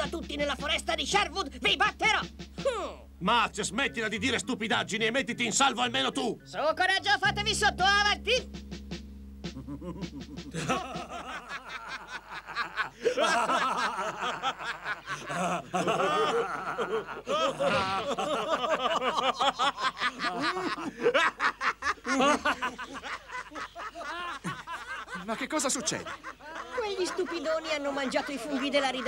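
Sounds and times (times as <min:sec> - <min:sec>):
men laughing: 0:00.0 - 0:03.0, 0:09.5 - 0:29.0.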